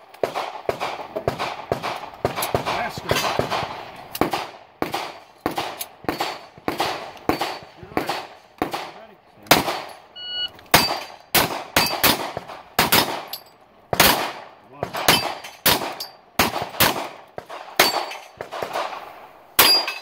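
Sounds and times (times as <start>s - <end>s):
pistol shots echoing: 0.0s - 10.1s, 10.7s - 20.0s.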